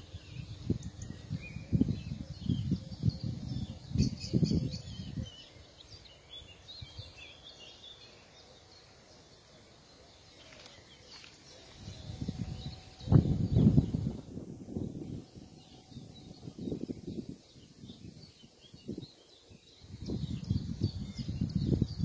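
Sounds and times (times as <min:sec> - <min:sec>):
small birds chirping: 0:00.0 - 0:22.0
low rumbling on microphone: 0:11.9 - 0:19.1.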